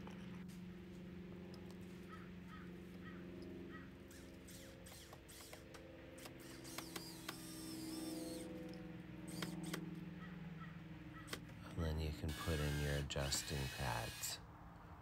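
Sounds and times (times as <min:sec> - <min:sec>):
steady low hum: 0:00.0 - 0:15.0
faint crows cawing: 0:01.4 - 0:13.0.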